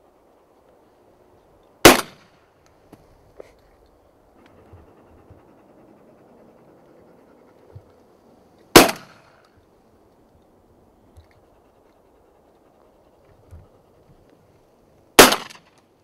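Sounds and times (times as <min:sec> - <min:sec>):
shotgun shot: 0:01.8 - 0:02.3, 0:08.7 - 0:09.4, 0:15.2 - 0:15.7.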